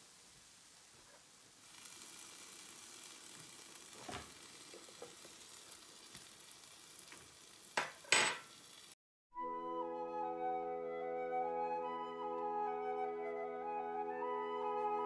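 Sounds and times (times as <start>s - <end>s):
waffle iron sizzling: 0.0s - 9.0s
flute music: 9.3s - 15.0s.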